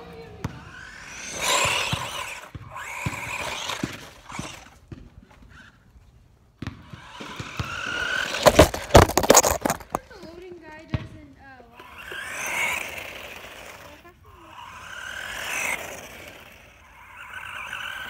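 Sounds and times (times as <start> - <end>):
toy truck motor whining: 0.0 - 4.8, 6.9 - 10.0, 11.7 - 18.0
rapid clatter of loud knocks: 8.4 - 10.0.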